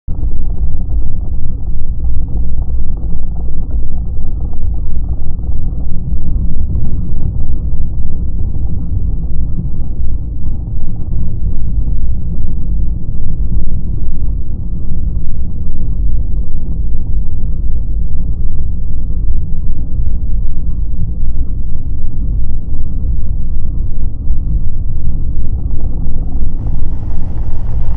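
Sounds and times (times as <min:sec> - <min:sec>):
motorcycle engine running: 0:26.0 - 0:27.9.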